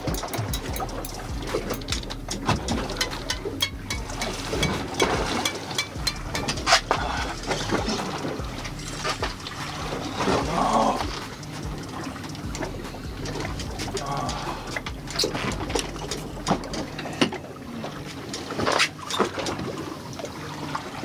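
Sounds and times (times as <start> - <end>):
clicks and knocks: 0.0 - 6.9
water splashing against boat hull: 0.0 - 21.0.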